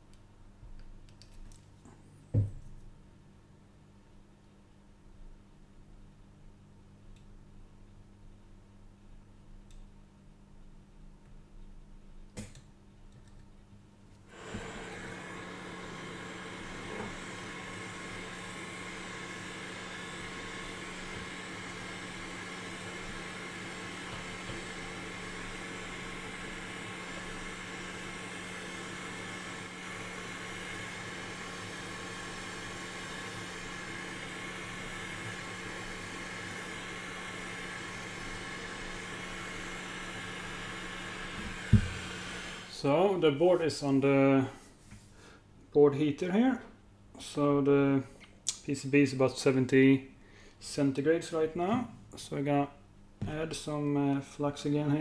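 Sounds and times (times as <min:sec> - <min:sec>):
hot-air rework station blowing: 0:14.3 - 0:43.2.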